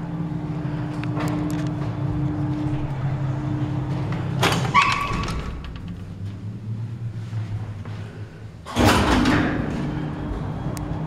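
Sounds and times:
elevator motor hum: 0.0 - 11.0
elevator metallic clunk: 8.6 - 10.5.

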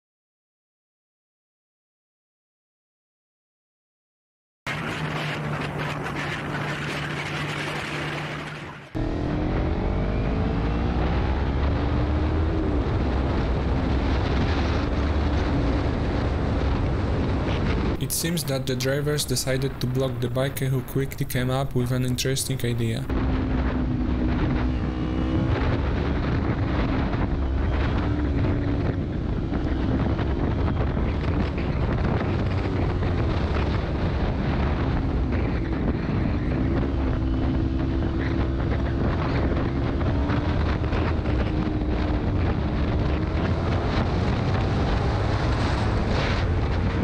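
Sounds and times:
motorcycle engine running: 4.7 - 10.3, 23.1 - 47.0
wind rumbling on microphone: 4.7 - 47.0.

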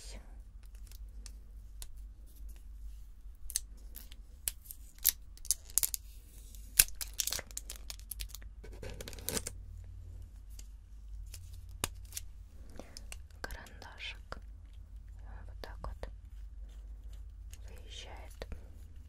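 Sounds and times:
wrapping crinkling and tearing: 3.4 - 9.6.

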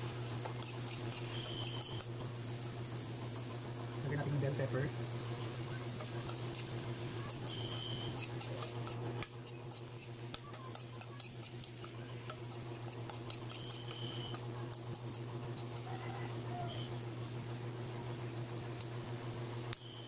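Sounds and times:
steady low hum: 0.0 - 20.0
metal spoon scraping a wok: 0.4 - 2.1, 6.0 - 15.9.

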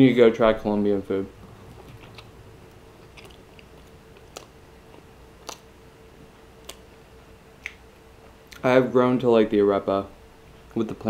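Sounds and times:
faint steady hum: 0.0 - 11.0
quiet chewing of food: 1.5 - 5.7, 6.6 - 7.0
sharp mouth clicks: 3.0 - 5.7, 6.6 - 6.9, 7.6 - 7.8.

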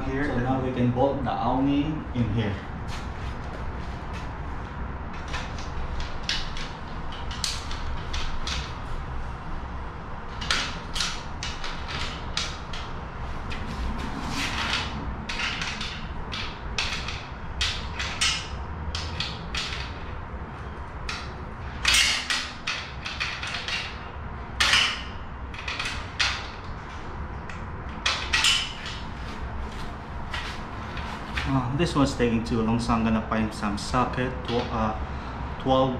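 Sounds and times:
metal clanks: 10.3 - 31.5.

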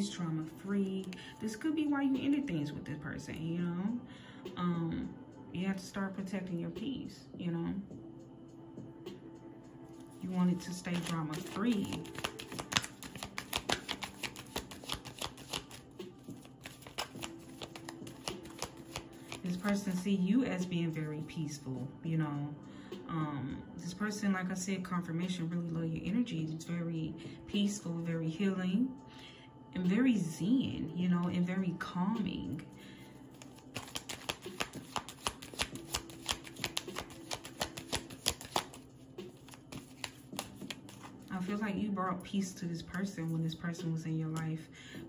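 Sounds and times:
cards being shuffled: 10.0 - 20.0, 33.3 - 41.3.

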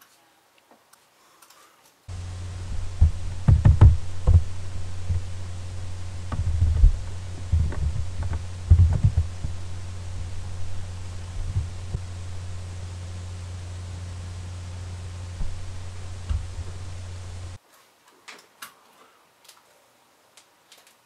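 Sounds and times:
steady low hum: 2.1 - 17.6.

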